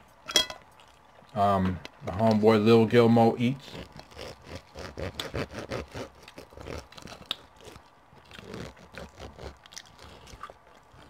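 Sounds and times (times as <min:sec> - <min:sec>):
cutlery scraping on plates: 0:00.3 - 0:00.6
chewing: 0:00.6 - 0:02.4, 0:03.6 - 0:11.0.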